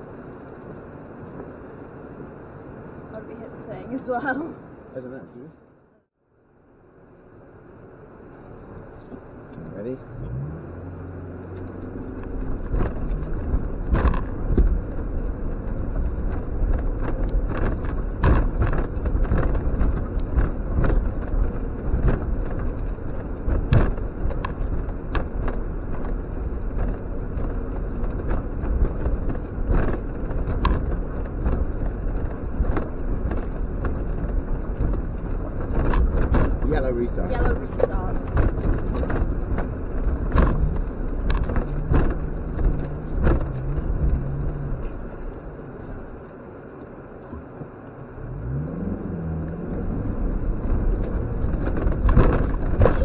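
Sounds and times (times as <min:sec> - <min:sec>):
car engine pulling uphill: 0:00.0 - 0:53.0.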